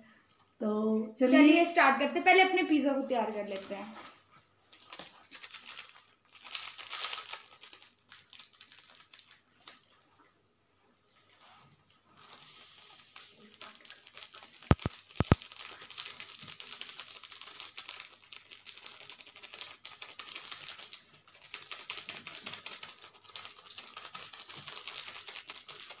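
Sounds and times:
paper sachets crinkling and tearing: 4.7 - 10.0, 12.1 - 26.0
sharp clicks: 14.7 - 15.4.

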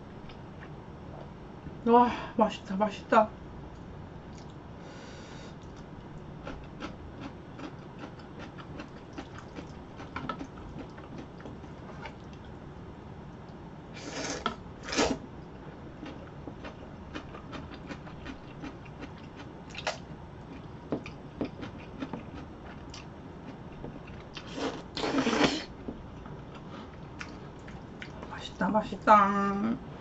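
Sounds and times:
wet chewing and smacking: 5.6 - 12.6, 16.0 - 24.5, 26.1 - 28.3.

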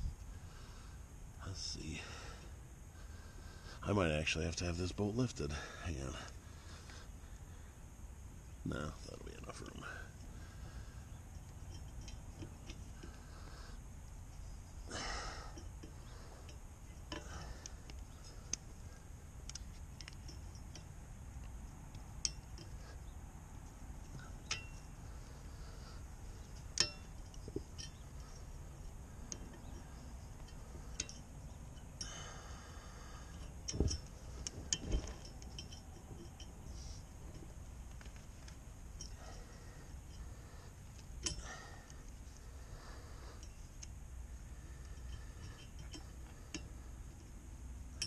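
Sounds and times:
tools clinking against metal nut: 11.3 - 13.4, 15.2 - 25.0, 26.4 - 44.0, 44.6 - 47.3.

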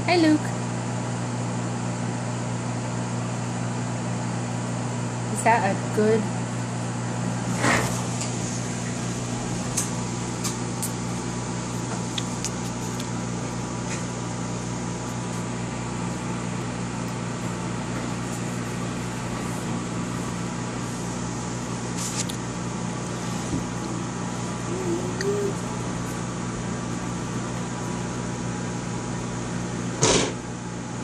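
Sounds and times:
appliance motor humming: 7.1 - 30.0.

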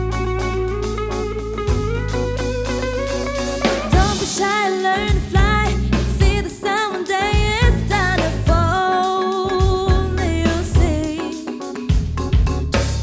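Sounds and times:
jazz fusion band playing: 0.0 - 13.0
woman singing with vibrato: 3.9 - 11.5.

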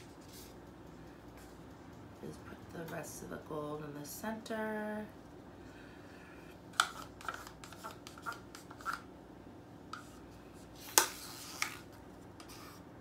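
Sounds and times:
stir stick scraping paint cup: 6.8 - 9.1.

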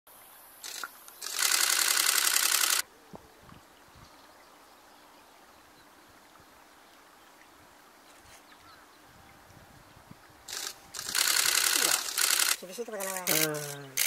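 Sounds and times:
faint outdoor background noise: 0.1 - 14.0
camera shutter burst: 0.6 - 2.8, 10.5 - 14.0.

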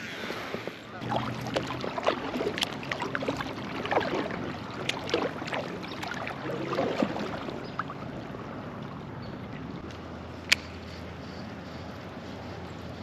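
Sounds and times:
water sloshing: 1.0 - 9.9
road traffic hum: 1.0 - 13.0.

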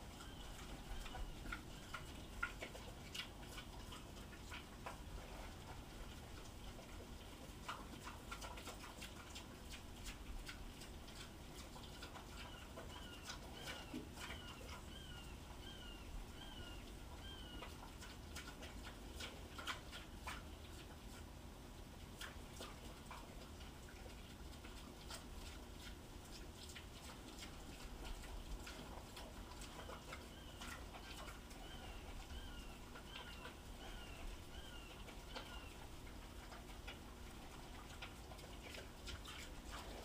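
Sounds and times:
pigs chewing: 0.0 - 40.0.

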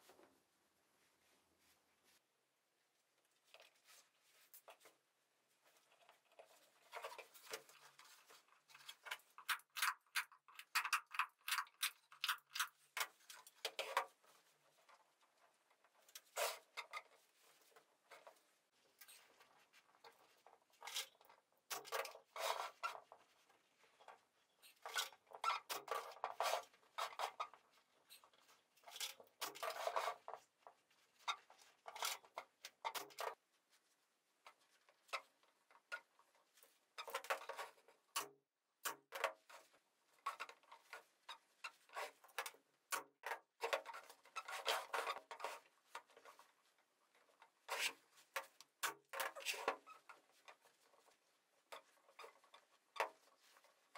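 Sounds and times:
fabric rustling and rubbing: 0.0 - 2.4, 3.5 - 8.8.

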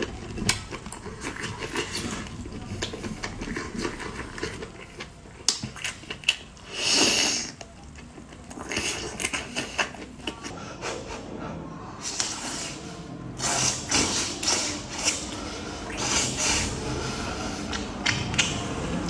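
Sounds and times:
wet chewing and smacking: 0.0 - 10.6, 13.4 - 18.7.

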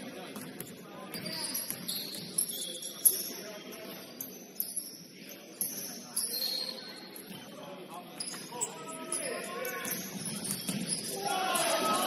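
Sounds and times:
sneakers squeaking on hardwood: 1.1 - 3.3, 9.6 - 11.2
ball bouncing: 9.8 - 11.0.

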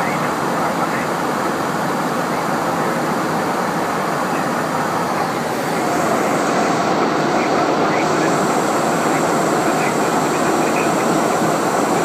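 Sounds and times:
air rushing over cockpit: 0.3 - 12.0.

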